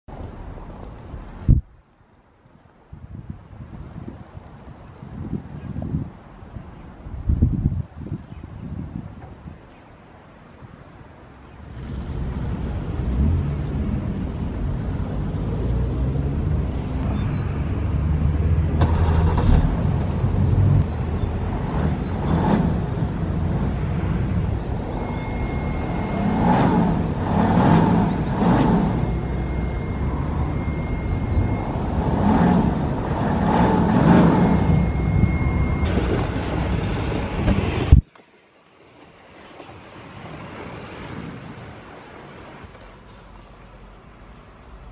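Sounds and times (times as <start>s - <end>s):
car engine idling and revving: 11.7s - 38.0s
thin high steady tone: 23.8s - 36.8s.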